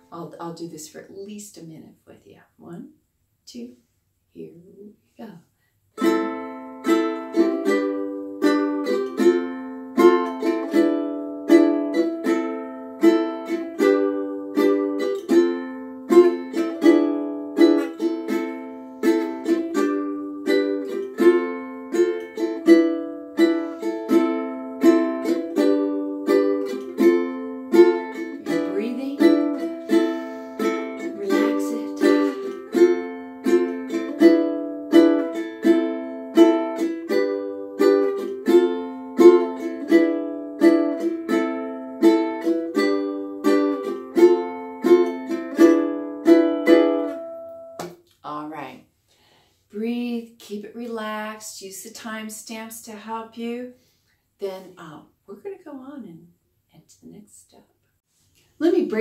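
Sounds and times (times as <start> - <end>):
ukulele strumming: 6.0 - 48.0, 58.6 - 59.0.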